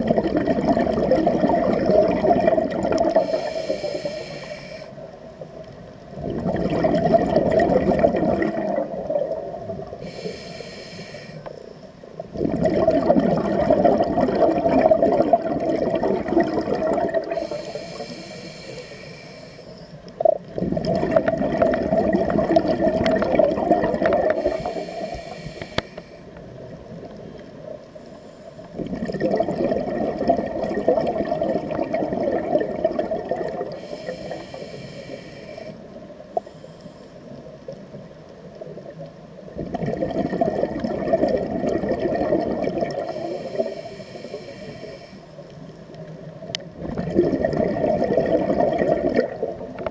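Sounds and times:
exhaled bubbles rushing: 0.0 - 3.6, 6.1 - 10.0, 12.2 - 18.1, 20.2 - 25.3, 28.8 - 34.4, 39.0 - 43.7, 46.6 - 49.9
regulator inhalation hiss: 3.2 - 5.1, 10.0 - 11.9, 17.2 - 20.0, 24.3 - 26.4, 33.7 - 37.4, 43.0 - 45.6.

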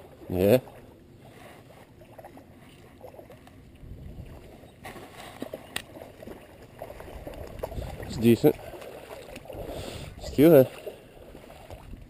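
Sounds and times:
water lapping at creek edge: 0.0 - 12.0
wind rumble on microphone: 3.7 - 4.8, 6.8 - 8.7, 9.4 - 10.5, 11.2 - 12.0.

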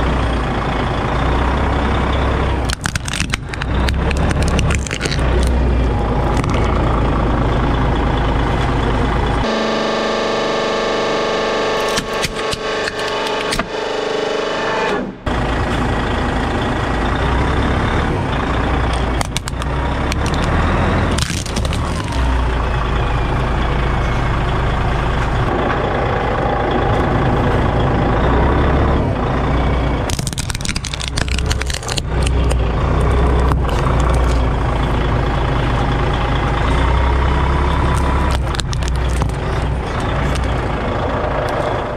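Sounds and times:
truck engine running: 0.0 - 41.9
plastic toys cracking and crunching: 2.6 - 5.6, 6.3 - 6.8, 11.8 - 13.6, 18.9 - 22.5, 30.1 - 34.5, 37.8 - 40.6.

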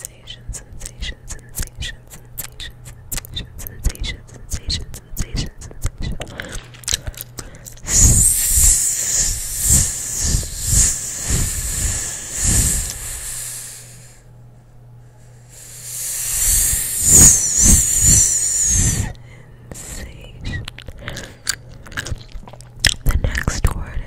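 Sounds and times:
whispered hissing into microphone: 0.0 - 2.8, 7.8 - 14.1, 15.5 - 19.1
air puffs against microphone: 7.8 - 14.2, 15.5 - 19.2.

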